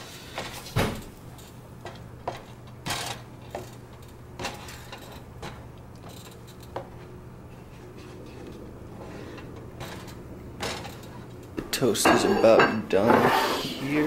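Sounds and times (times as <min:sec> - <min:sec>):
low hum: 0:05.1 - 0:11.7
spatula scraping frying pan: 0:12.2 - 0:14.0.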